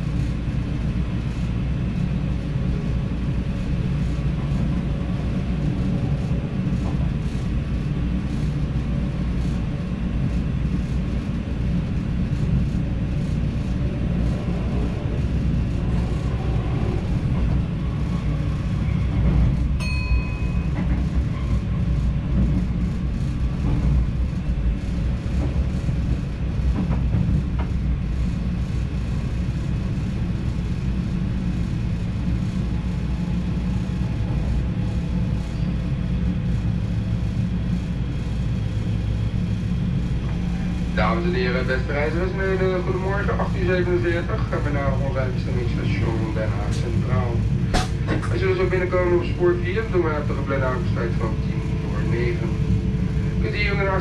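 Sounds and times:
train rumbling on rails: 0.0 - 54.0.

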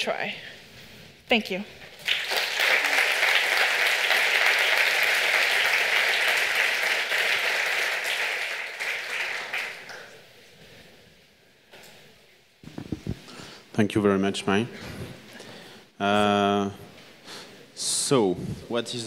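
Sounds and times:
audience applauding: 2.0 - 10.2.

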